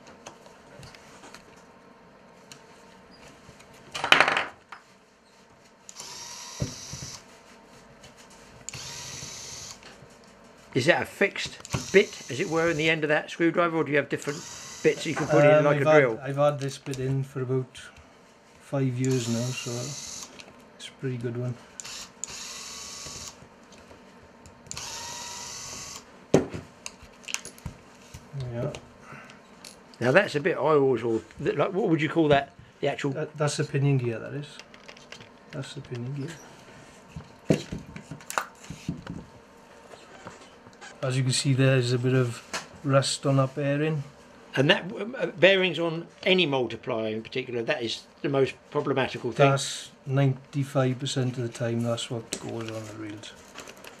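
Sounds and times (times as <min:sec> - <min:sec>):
electric screwdriver whirring: 0:05.9 - 0:07.2, 0:08.7 - 0:09.8, 0:11.6 - 0:12.8, 0:14.3 - 0:15.2, 0:19.1 - 0:20.3, 0:21.8 - 0:23.4, 0:24.7 - 0:26.1.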